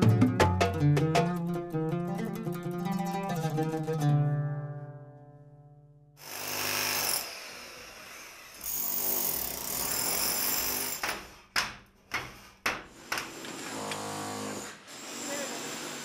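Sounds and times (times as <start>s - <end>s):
demolition hammer on masonry: 8.6s - 16.0s.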